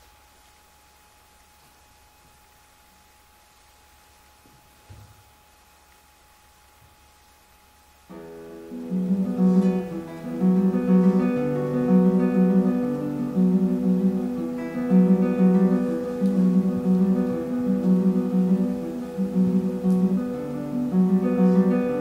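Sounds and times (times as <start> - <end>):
fingerstyle classical guitar: 8.1 - 22.0.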